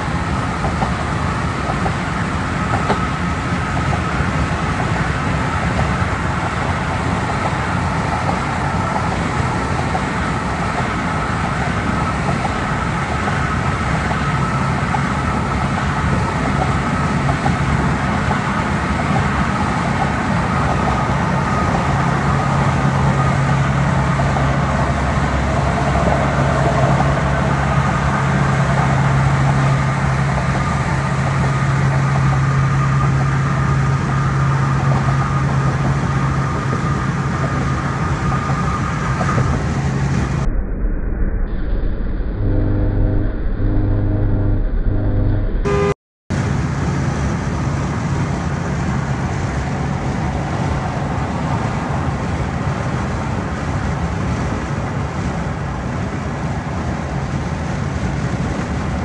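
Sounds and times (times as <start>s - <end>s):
car road noise from inside: 0.0s - 40.4s
steady low hum: 0.0s - 51.6s.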